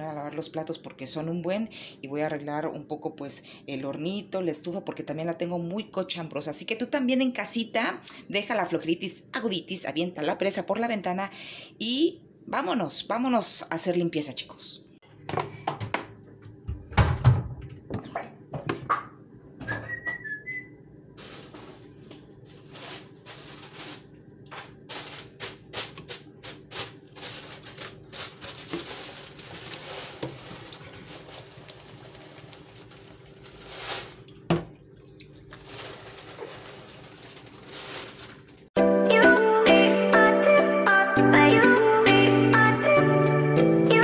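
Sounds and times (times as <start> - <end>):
whistle-like squeak: 19.7 - 20.7.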